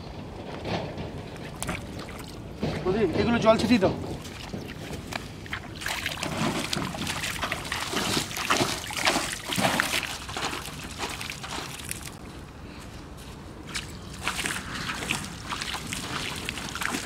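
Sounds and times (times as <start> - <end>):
water splashed by hand: 4.0 - 12.2, 13.7 - 17.0.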